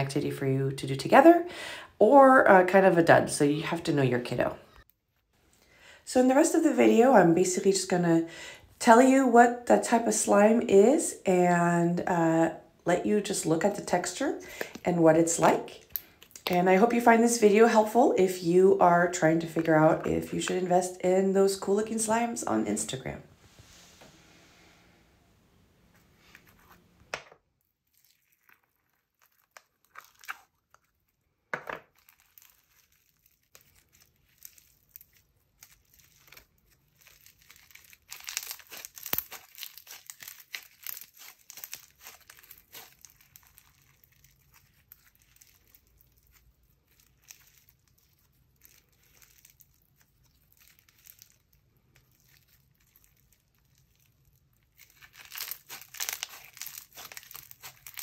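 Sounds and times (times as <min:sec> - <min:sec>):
bead slime crunching clicks: 0:37.4 - 0:43.7, 0:54.8 - 0:58.0.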